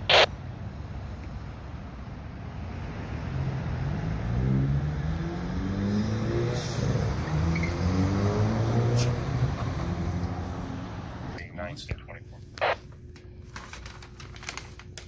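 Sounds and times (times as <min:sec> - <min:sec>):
road noise: 0:00.0 - 0:11.9
car engine accelerating: 0:03.1 - 0:11.4.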